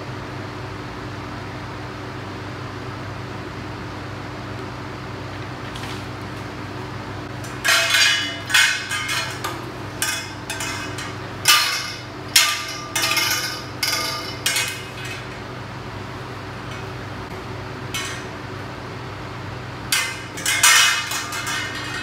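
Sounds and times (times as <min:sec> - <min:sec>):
metal tubes clanking together: 0:07.3 - 0:15.7, 0:16.6 - 0:17.1, 0:17.9 - 0:18.6, 0:19.9 - 0:22.0.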